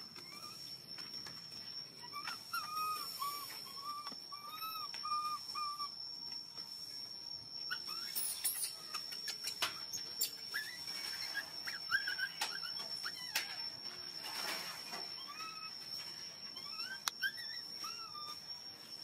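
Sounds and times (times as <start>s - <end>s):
high squeaky chirps: 0.0s - 19.0s
baby monkey coo calls: 2.0s - 6.0s, 7.7s - 15.8s, 16.5s - 18.4s.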